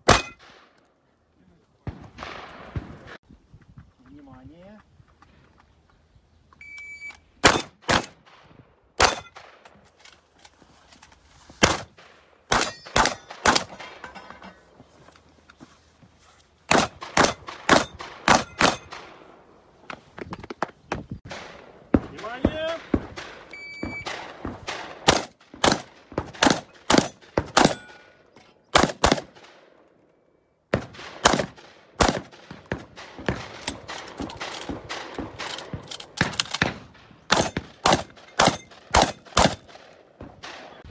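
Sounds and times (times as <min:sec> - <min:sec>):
shotgun shots: 0:00.0 - 0:00.8, 0:01.8 - 0:03.2, 0:07.4 - 0:09.6, 0:11.6 - 0:14.0, 0:16.7 - 0:19.3, 0:21.2 - 0:29.7, 0:30.7 - 0:40.9
electronic timer beep: 0:06.6 - 0:07.2, 0:23.5 - 0:24.1.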